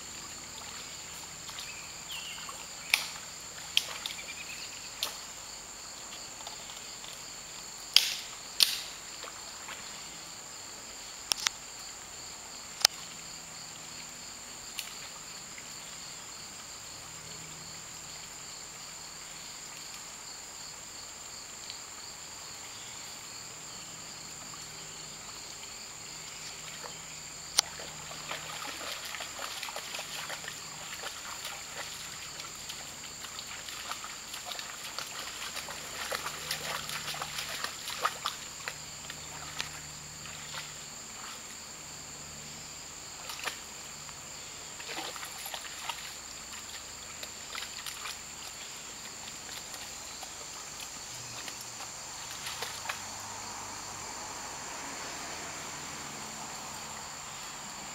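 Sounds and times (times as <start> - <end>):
high insect chorus: 0.0 - 57.9
dog splashing in water: 27.6 - 41.4, 44.8 - 53.2.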